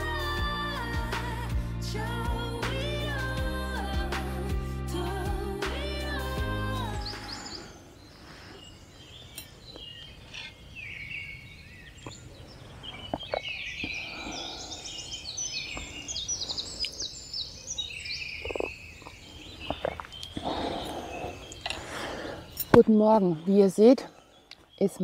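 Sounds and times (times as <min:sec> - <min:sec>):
small birds chirping: 0:06.6 - 0:25.0.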